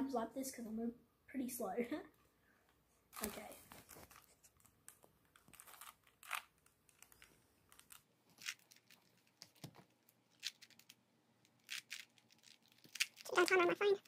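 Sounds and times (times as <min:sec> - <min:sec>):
puzzle cube layers clicking: 0:11.6 - 0:14.0.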